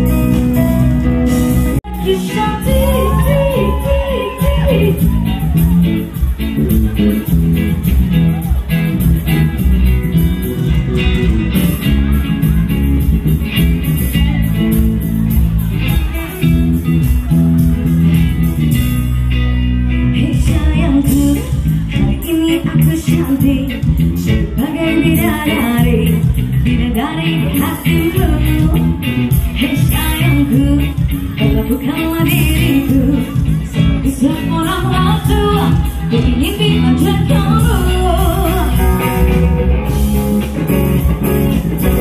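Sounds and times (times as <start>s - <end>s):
electric guitar: 0.0s - 42.0s
person singing: 1.8s - 5.9s, 20.0s - 39.6s.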